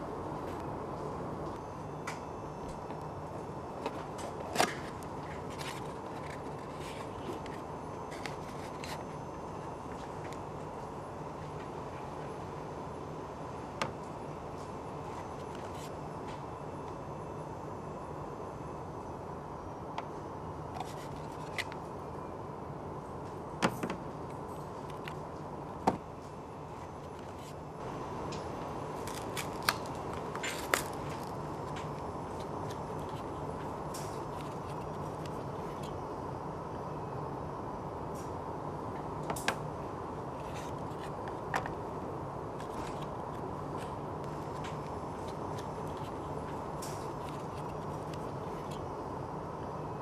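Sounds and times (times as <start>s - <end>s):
background hiss and hum: 0.0s - 50.0s.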